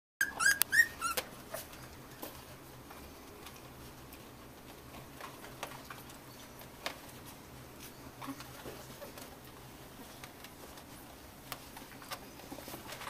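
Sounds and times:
puppies squeaking and yelping: 0:00.2 - 0:01.8
faint ticks and scratches: 0:01.6 - 0:13.0.

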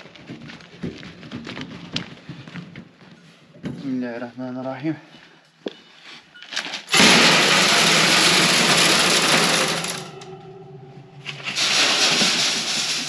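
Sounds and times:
grain pouring into metal trough: 0:06.9 - 0:10.2, 0:11.3 - 0:13.0.

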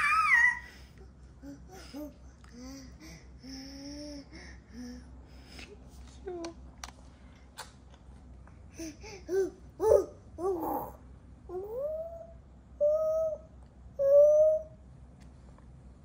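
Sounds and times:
baby babbling: 0:08.8 - 0:14.7.

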